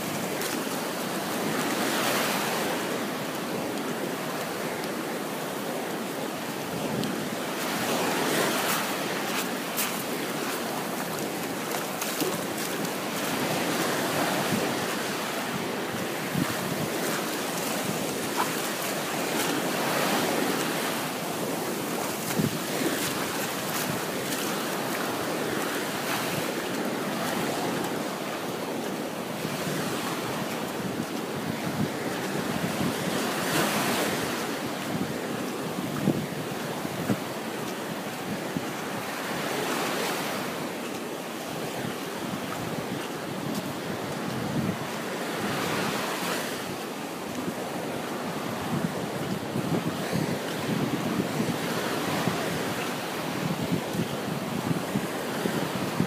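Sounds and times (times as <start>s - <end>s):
small waves washing on beach: 0.0s - 56.0s
wind noise on microphone: 0.0s - 56.0s.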